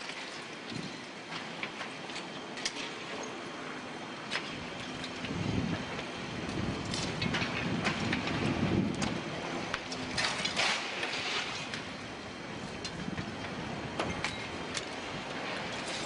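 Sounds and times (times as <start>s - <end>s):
crackles and clicks: 4.2s - 16.0s.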